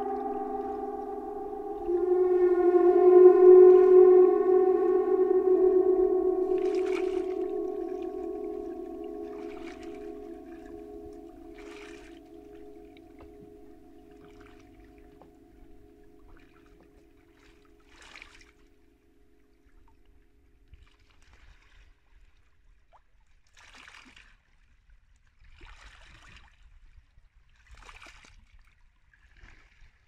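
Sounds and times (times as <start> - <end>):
sustained ringing tone: 0.0 - 18.0.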